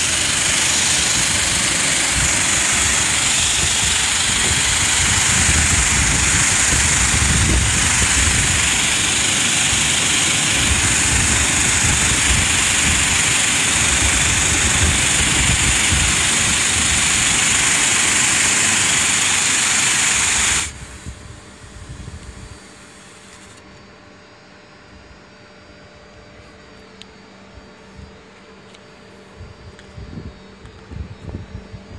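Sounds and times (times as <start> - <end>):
water jet spraying: 0.0 - 20.8
machine drone: 0.0 - 23.6.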